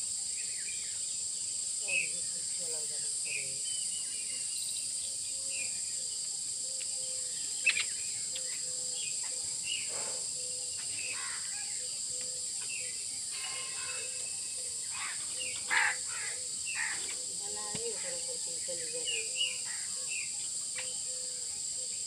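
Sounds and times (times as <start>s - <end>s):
insects droning: 0.0s - 22.0s
small birds chirping: 0.3s - 22.0s
crows cawing: 11.1s - 11.8s, 13.4s - 14.3s, 14.9s - 17.2s.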